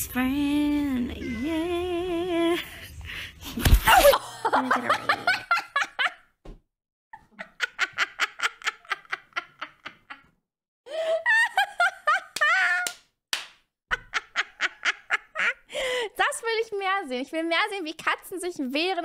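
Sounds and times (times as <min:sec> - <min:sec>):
woman laughing hard: 0:03.4 - 0:06.3, 0:07.2 - 0:12.9, 0:13.9 - 0:16.0.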